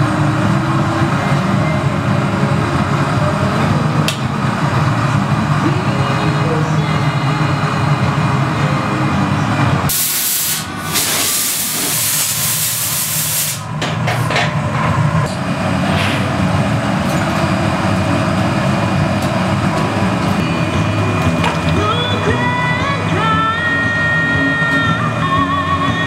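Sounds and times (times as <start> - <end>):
furnace burners roaring: 0.0 - 26.0
loud hiss: 9.9 - 13.7.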